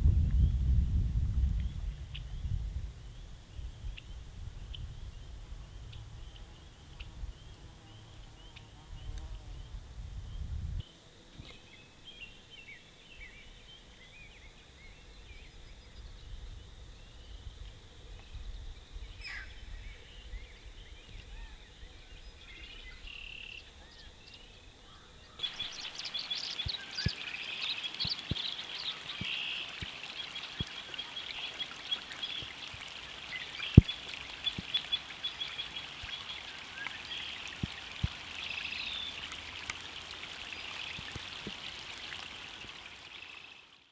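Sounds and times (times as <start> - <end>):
small birds chirping and trilling: 18.2 - 43.8
watery wash: 25.4 - 43.9.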